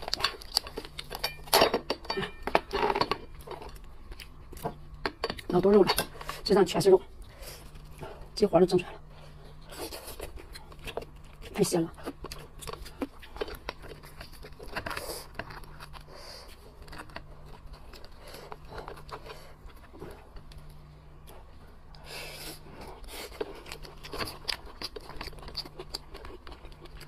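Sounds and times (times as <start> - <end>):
faint low hum: 0.0 - 27.0
chewing: 7.0 - 27.0.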